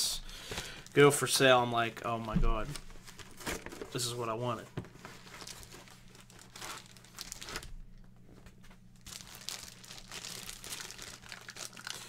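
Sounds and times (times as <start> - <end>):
steady low hum: 0.0 - 9.1
packaging crinkling and tearing: 2.6 - 4.2, 5.0 - 12.0.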